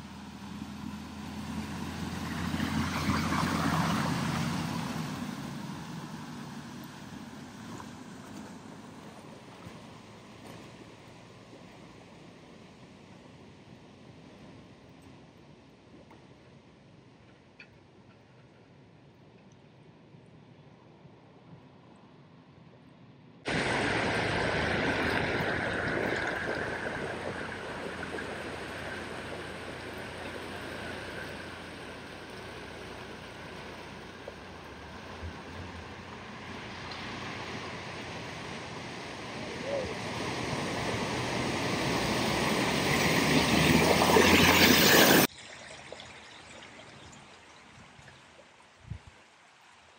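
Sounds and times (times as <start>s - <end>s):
low engine hum: 0.0s - 45.3s
rushing floodwater: 23.5s - 49.9s.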